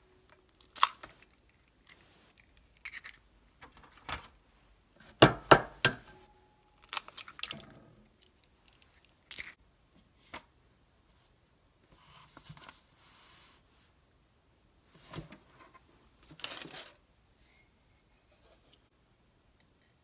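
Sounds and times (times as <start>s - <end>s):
egg tapped on steel bowl: 5.2s - 6.2s
paper rustling: 16.2s - 17.0s.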